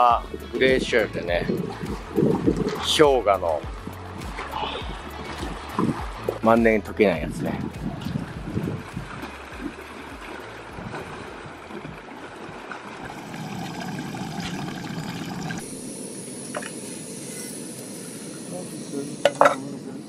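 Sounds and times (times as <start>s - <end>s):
thin high hiss: 13.8s - 20.0s.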